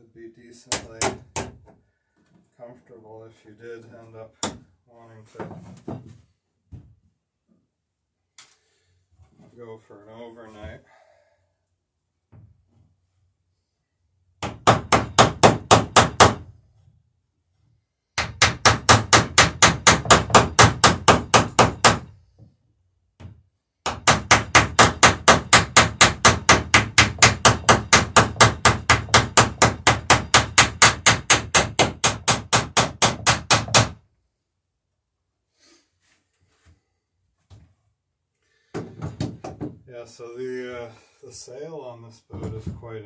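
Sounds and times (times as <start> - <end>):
hammer striking rivets: 14.4 - 16.5, 18.2 - 22.1, 23.2 - 34.0.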